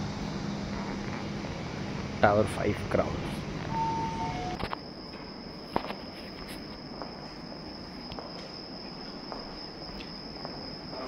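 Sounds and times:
steady high-pitched whine: 0.0 - 11.0
falling two-note beep: 3.7 - 4.6.

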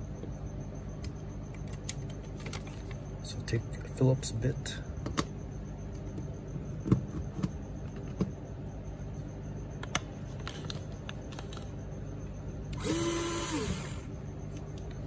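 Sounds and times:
cordless driver motor whirring: 12.7 - 14.1.

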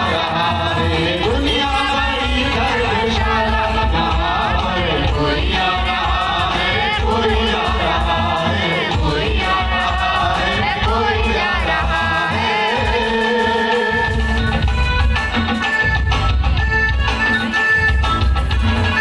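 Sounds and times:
person singing: 0.0 - 14.5.

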